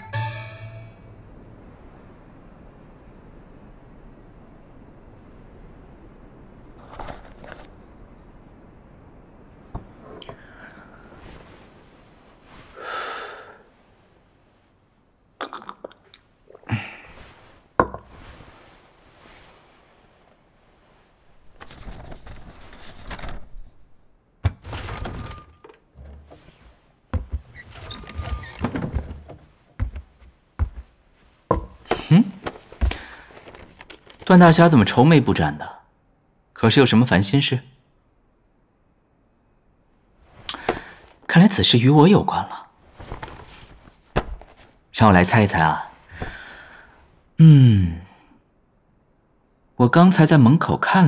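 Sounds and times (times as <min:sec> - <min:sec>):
crickets chirping: 0:00.0 - 0:51.0
brief rustling: 0:06.8 - 0:07.8, 0:17.1 - 0:23.8, 0:24.7 - 0:34.5, 0:42.9 - 0:44.8
sharp knocks and thunks: 0:24.4 - 0:33.6, 0:44.1 - 0:44.6.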